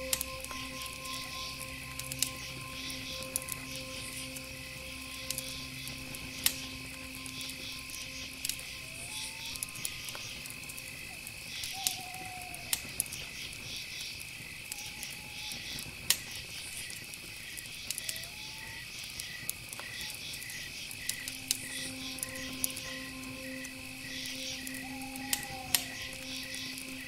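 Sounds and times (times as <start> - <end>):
high pulsing insect chirping: 0.0 - 15.7, 18.1 - 27.0.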